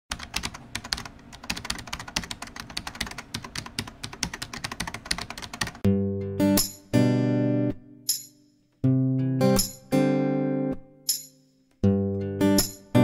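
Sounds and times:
keyboard typing clicks: 0.1 - 5.8
acoustic guitar strummed: 5.8 - 8.1, 8.8 - 11.1, 11.8 - 13.0.

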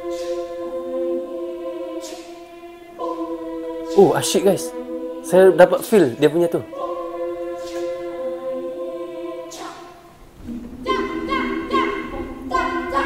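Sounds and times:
choir singing a cappella: 0.0 - 13.0
sharp hiss: 2.0 - 2.4.

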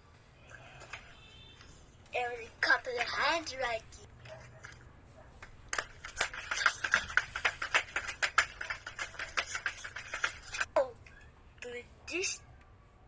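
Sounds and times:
rapid sharp clicks: 5.4 - 10.7.

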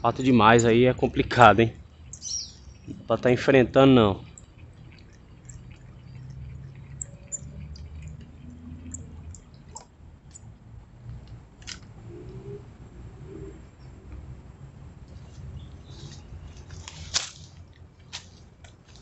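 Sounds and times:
birds chirping: 0.0 - 10.6, 12.0 - 17.1.

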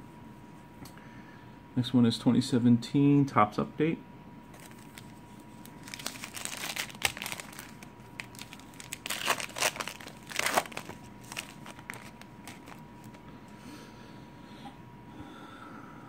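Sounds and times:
foil wrapper tearing and crinkling: 4.6 - 13.2.

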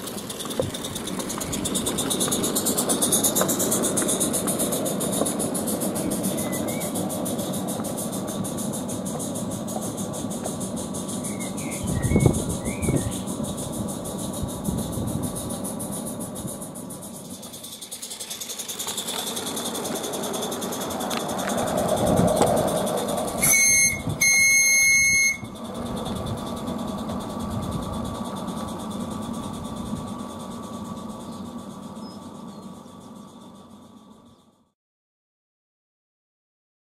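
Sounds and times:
small wagons clattering on track: 0.0 - 32.6
steam locomotive exhaust beats: 0.0 - 34.7
bird chirps: 6.0 - 7.0, 11.0 - 13.4, 31.2 - 33.4
locomotive whistle: 6.0 - 7.0, 11.1 - 13.4, 23.3 - 25.7.

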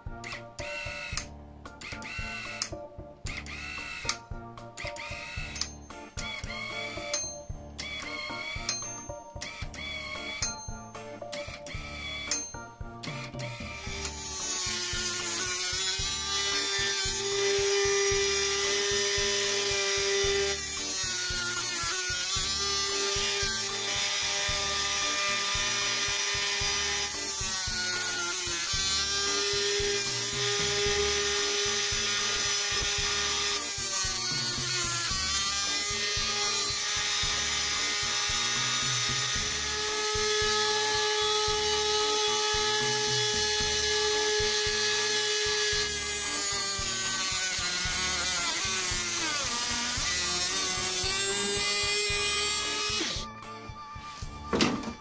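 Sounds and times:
motor-driven cutter milling metal: 11.3 - 53.3.

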